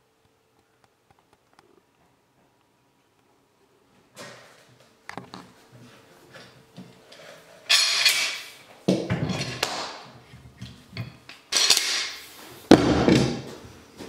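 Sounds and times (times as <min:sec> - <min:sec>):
steel clamps clanking on workbench: 0:07.7 - 0:08.5, 0:11.0 - 0:12.2.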